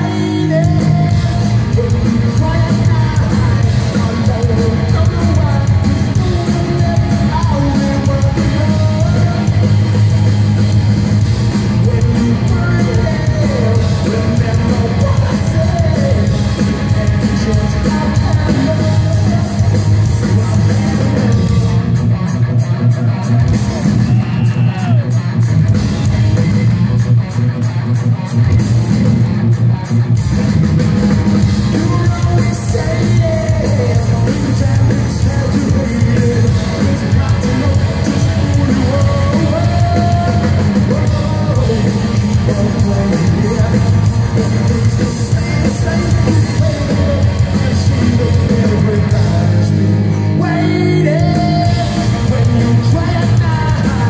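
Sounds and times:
man singing and shouting: 0.0s - 10.0s, 11.3s - 22.2s, 31.4s - 54.0s
bass guitar: 0.0s - 54.0s
distorted electric guitar: 0.0s - 54.0s
drums: 0.0s - 54.0s.

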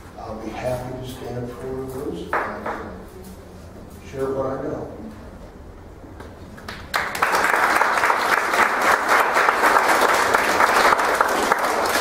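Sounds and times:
audience applauding: 6.6s - 12.0s.

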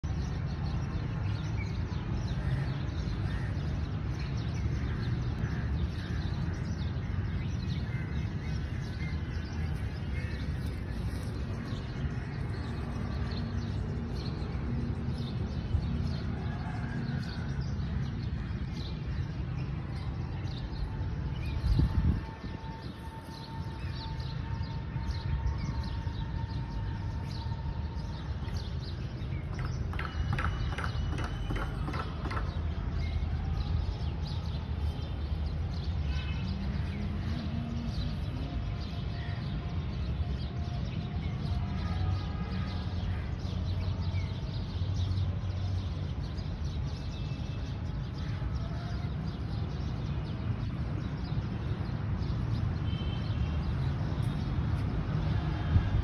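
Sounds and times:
small birds chirping: 3.3s - 15.6s.

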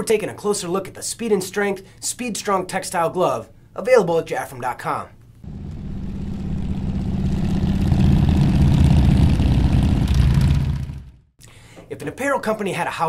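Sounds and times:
motorcycle engine running: 5.4s - 11.3s.

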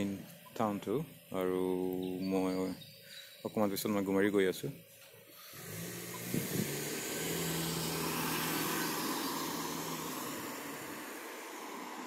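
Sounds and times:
car driving past: 5.4s - 12.0s.

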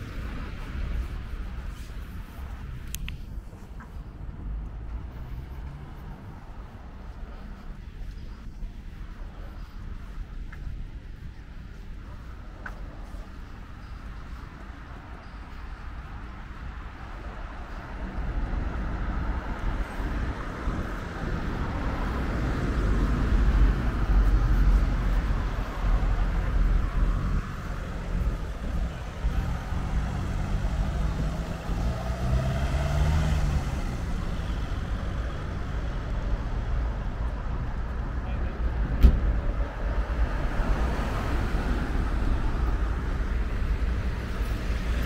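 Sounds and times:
low traffic rumble: 0.0s - 45.0s.

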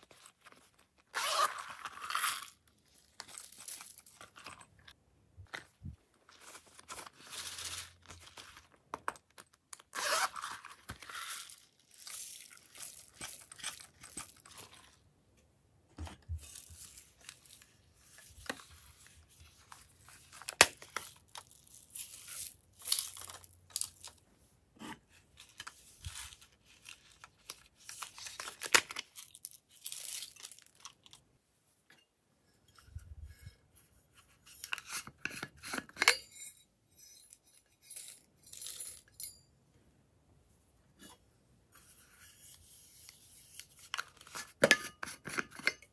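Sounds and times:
plastic scraping and rustling: 5.5s - 15.1s.

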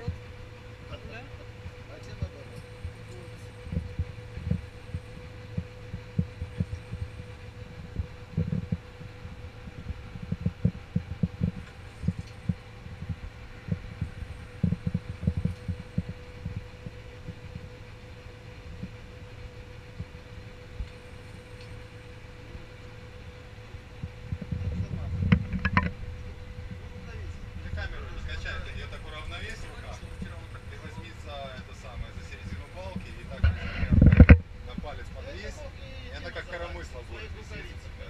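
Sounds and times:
diesel engine drone: 0.0s - 38.0s
low thumps: 23.9s - 31.0s.

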